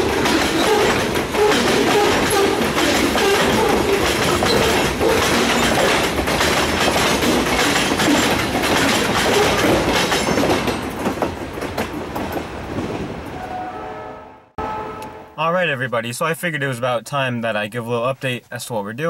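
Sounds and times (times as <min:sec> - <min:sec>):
wheels clacking over rail joints: 0:00.0 - 0:13.2
freight train rolling past: 0:00.0 - 0:15.4.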